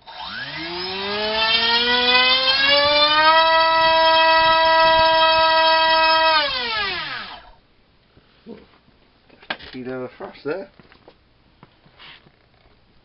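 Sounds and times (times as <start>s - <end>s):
electric motor and propeller whine: 0.0s - 7.6s.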